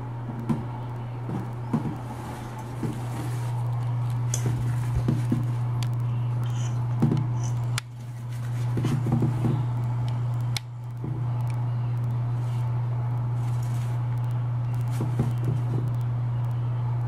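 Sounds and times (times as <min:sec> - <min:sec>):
steady low hum: 0:00.0 - 0:17.0
small clicks and scratches: 0:05.8 - 0:08.5.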